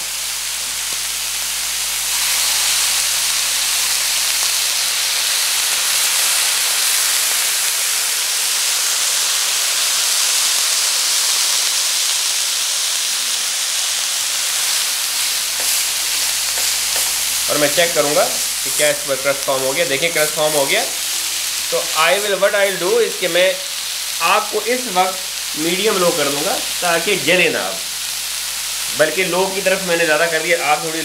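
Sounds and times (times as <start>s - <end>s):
meat sizzling in butter: 0.0s - 31.0s.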